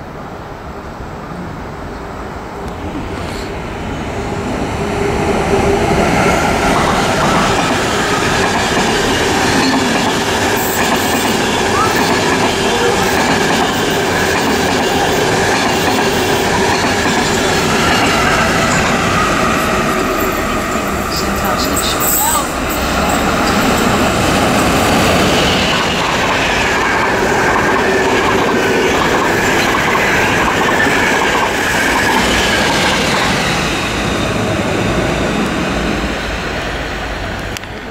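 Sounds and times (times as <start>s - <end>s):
train wheels rumbling on rail: 1.6s - 37.9s.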